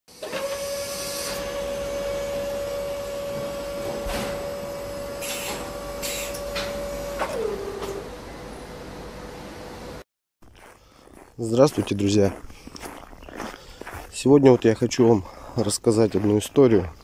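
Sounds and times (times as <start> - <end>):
machine-like hum: 0.1 - 10.0.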